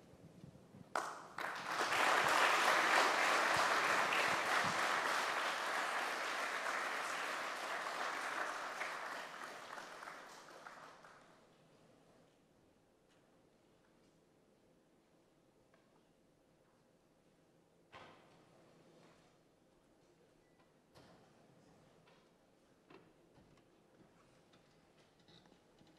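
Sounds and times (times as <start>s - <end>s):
audience applauding: 1.0s - 11.3s.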